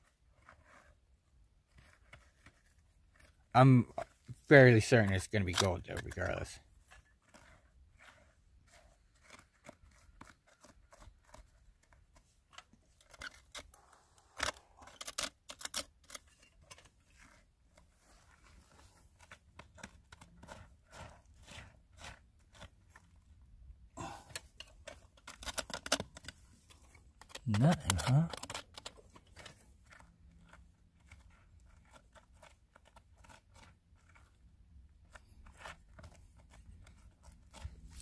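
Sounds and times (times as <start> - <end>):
hand tool scraping dirt and gravel: 1.7 - 12.2, 13.0 - 38.0.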